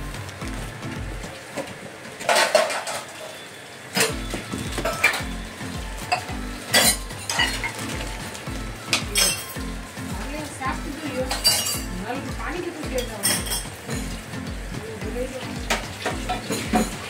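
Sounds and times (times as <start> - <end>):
music with bass beat: 0.0 - 1.4, 4.1 - 17.0.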